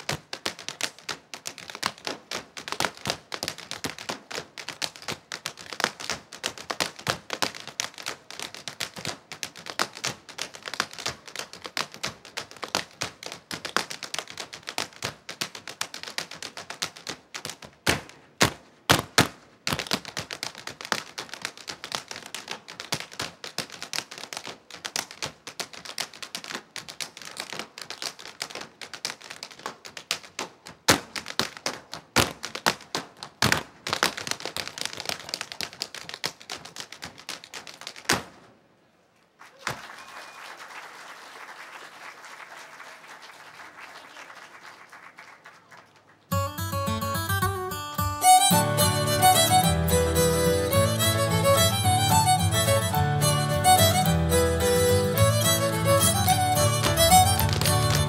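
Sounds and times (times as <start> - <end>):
dance shoes tapping on stage: 0.0 - 38.5, 45.9 - 58.0
loud foot stamps: 0.0 - 38.5.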